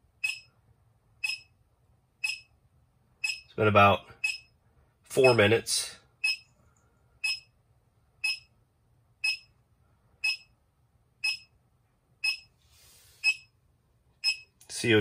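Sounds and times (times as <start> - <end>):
short high electronic beeps: 0.2 - 0.5, 1.2 - 1.5, 2.2 - 2.5, 3.2 - 3.5, 12.2 - 12.5, 13.2 - 13.5.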